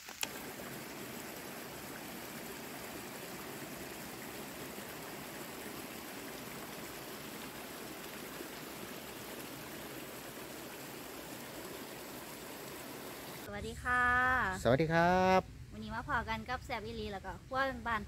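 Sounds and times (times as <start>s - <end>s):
stream running over rocks: 0.0s - 13.5s.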